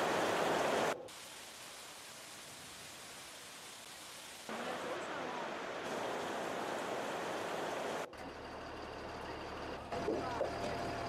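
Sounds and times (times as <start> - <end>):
heavy rain falling: 0.0 - 8.1.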